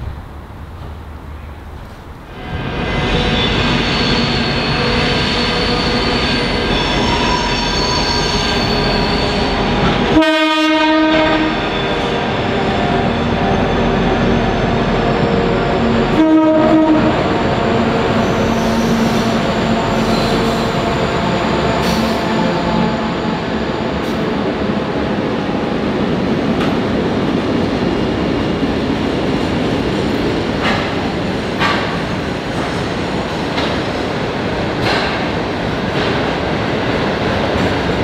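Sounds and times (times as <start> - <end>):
locomotive horn blasts: 10.1 - 11.7, 16.1 - 17.4.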